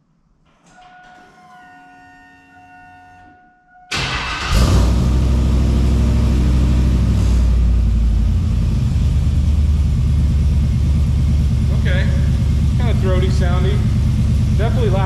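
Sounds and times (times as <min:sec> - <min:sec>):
truck engine cranking: 0:03.9 - 0:07.2
truck engine idling loudly: 0:04.3 - 0:15.0.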